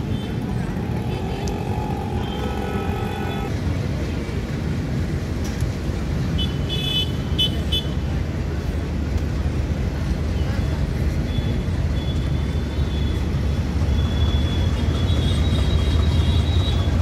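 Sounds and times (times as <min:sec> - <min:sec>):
vehicles idling: 0:00.0 - 0:03.6.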